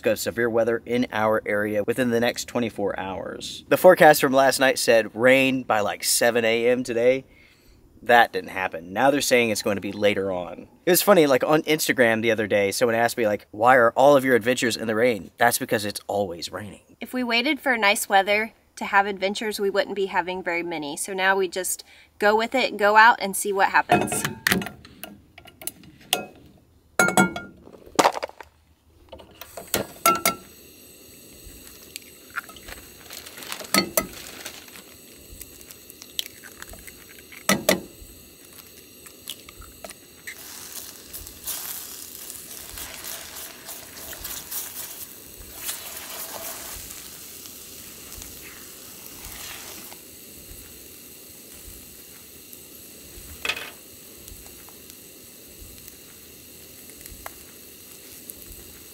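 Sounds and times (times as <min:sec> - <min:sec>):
eggs sizzling in a pan: 0:29.3 - 0:58.9
pan and utensils clinking: 0:29.8 - 0:30.4, 0:33.7 - 0:34.2.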